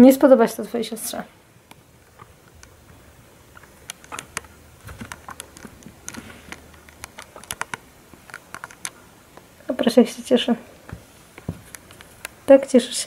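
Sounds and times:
guinea pig feet tapping on carpet: 0:10.9 - 0:12.3.

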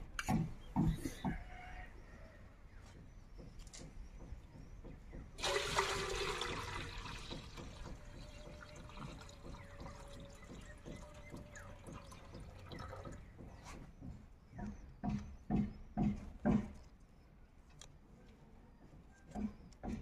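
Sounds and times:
water pouring from a pot: 0:05.4 - 0:07.7
water trickling: 0:05.4 - 0:13.2.

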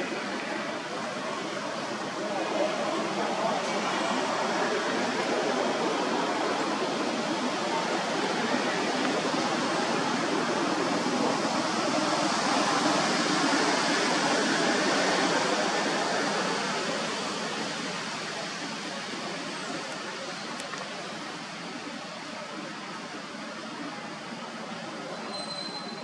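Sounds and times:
steady rushing noise: 0:00.0 - 0:25.2.

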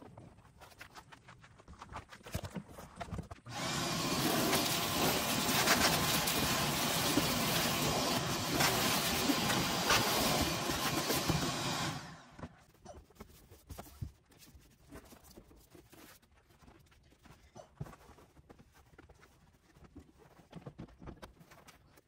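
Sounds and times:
pressure washer spray hissing: 0:03.6 - 0:12.0.

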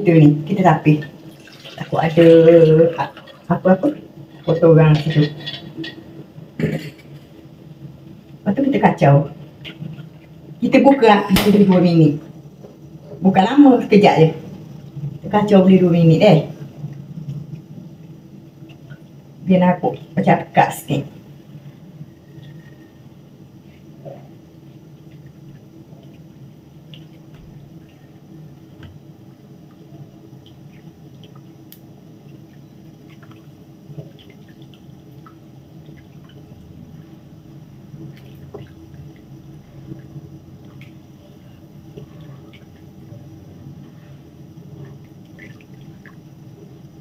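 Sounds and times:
steady low hum: 0:00.0 - 0:47.0
wet squelches: 0:23.6 - 0:47.0.

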